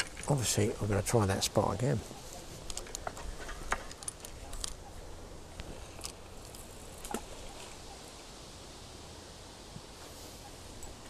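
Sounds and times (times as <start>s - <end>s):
fishing reel clicks and rustles: 2.6s - 4.8s.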